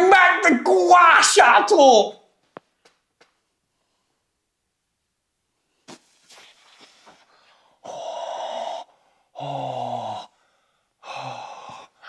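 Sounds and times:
man breathing in pain: 7.4 - 12.0
man gasping: 7.4 - 12.0
man groaning: 7.9 - 10.3.

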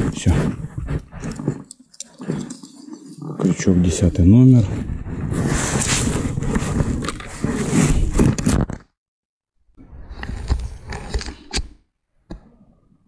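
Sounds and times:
jacket and gloves rustling: 0.0 - 8.8.

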